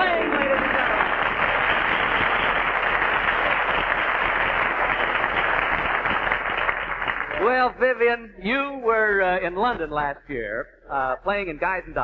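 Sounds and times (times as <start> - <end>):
studio audience applauding: 0.0 - 7.9.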